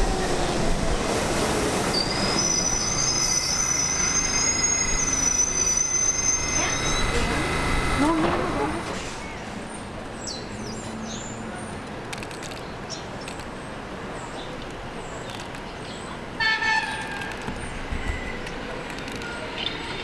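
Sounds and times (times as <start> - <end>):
subway train running: 0.0 - 20.0
subway train horn toot: 16.4 - 17.1.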